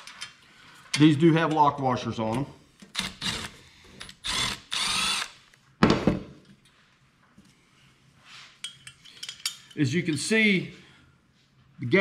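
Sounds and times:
cordless electric ratchet running: 4.2s - 5.4s.

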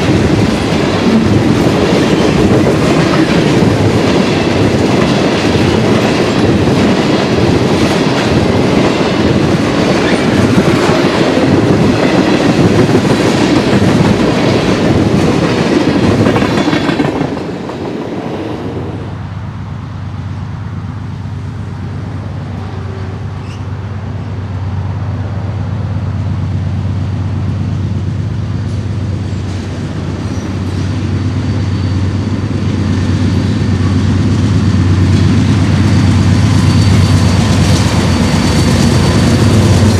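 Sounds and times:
train wheels clattering on rail joints: 0.0s - 18.3s
diesel locomotive engines humming: 0.0s - 39.9s.

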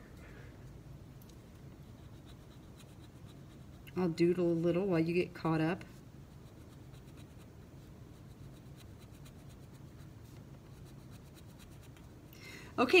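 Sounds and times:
marker scratching on paper: 1.7s - 3.8s, 6.3s - 12.1s.

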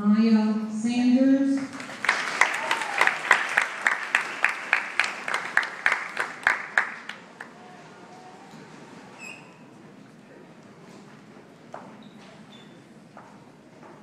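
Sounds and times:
audience clapping: 1.6s - 7.6s
loud sharp claps nearby: 1.6s - 7.6s.

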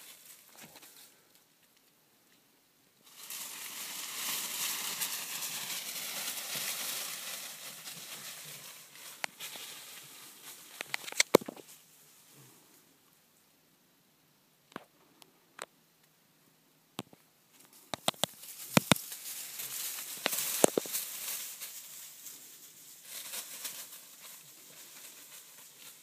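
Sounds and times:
dry leaves rustling and crackling: 0.0s - 1.2s, 3.0s - 12.0s, 17.6s - 26.0s
twigs snapping: 10.7s - 11.6s, 17.9s - 21.0s.

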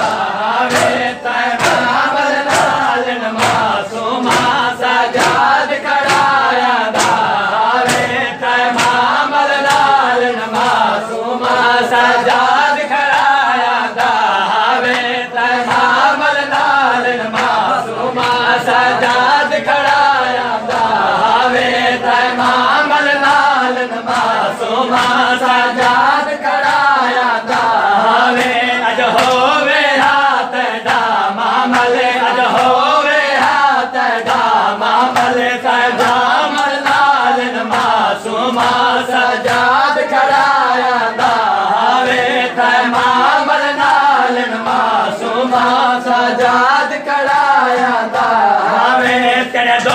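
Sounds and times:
hands slapping bare chests: 0.0s - 19.2s, 22.3s - 42.2s
men chanting in unison: 0.0s - 49.9s.

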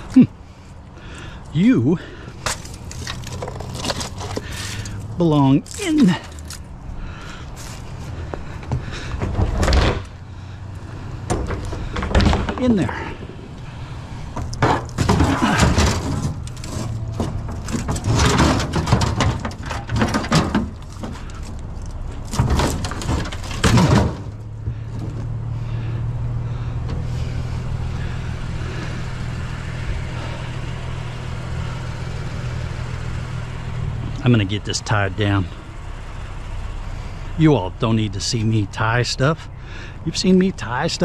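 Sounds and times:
vehicle engine humming: 0.0s - 41.0s
metal frame clanking on truck bed: 11.1s - 13.5s, 14.3s - 25.3s.

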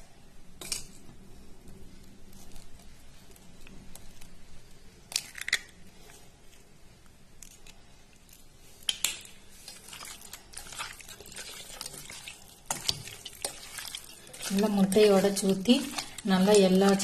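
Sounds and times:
egg shell cracking: 5.1s - 5.8s
hands squishing raw egg into chicken: 7.4s - 17.0s.

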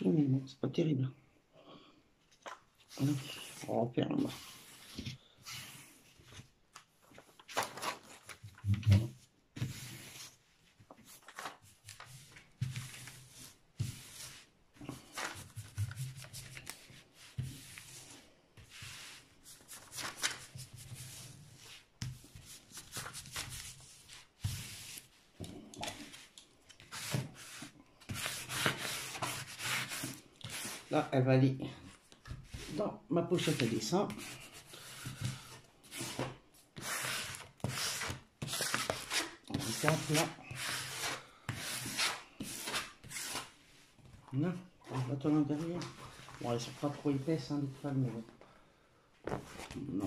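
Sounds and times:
hands rubbing paper canvas: 9.6s - 30.9s, 32.4s - 43.6s.

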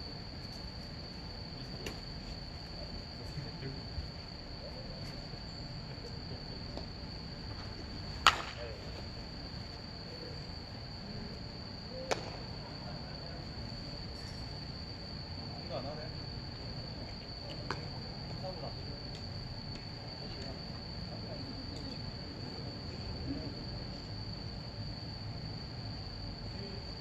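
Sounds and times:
crickets chirring: 0.0s - 27.0s
baseball smacking into glove: 8.2s - 8.7s, 12.0s - 12.4s.

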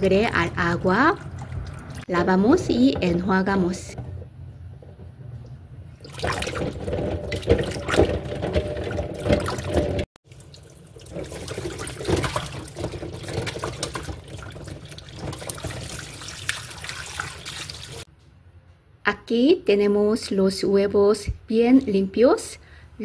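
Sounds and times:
tap water running into steel bowl: 6.0s - 18.1s.

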